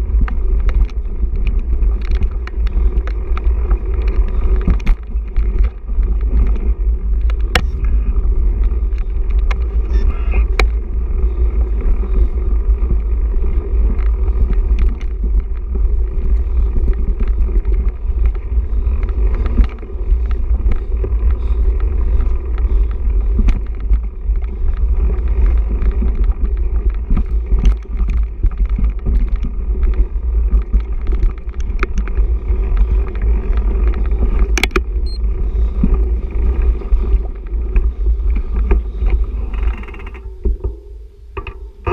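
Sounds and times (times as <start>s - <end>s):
bike clicks and rattles: 0.0s - 41.9s
wind rumble on microphone: 0.0s - 41.9s.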